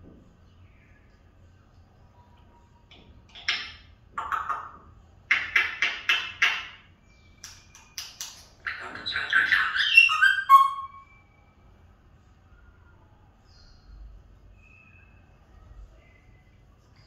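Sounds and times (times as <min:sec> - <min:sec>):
parrot chatter: 0:03.3 - 0:06.8, 0:07.5 - 0:11.1
parrot squawking and clicking: 0:03.3 - 0:06.8, 0:07.4 - 0:10.9.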